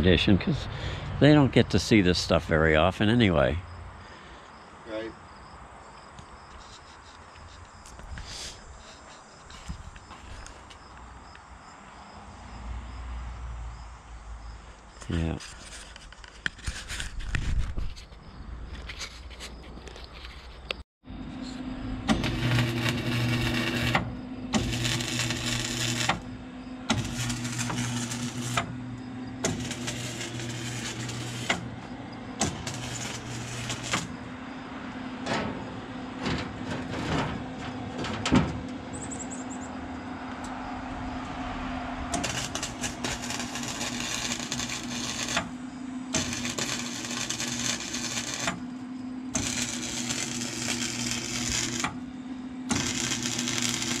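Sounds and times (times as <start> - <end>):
low hum: 21.1 - 54.0
welder arc crackling: 22.1 - 28.8, 29.4 - 31.7, 32.4 - 34.2, 42.1 - 48.6, 49.3 - 52.0, 52.7 - 54.0.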